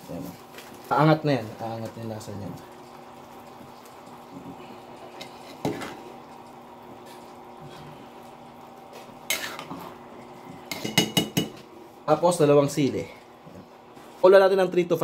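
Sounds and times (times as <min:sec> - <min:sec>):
spoon stirring soup in a pot: 0:03.6 - 0:11.7
spoon clinking against pot: 0:10.7 - 0:11.6.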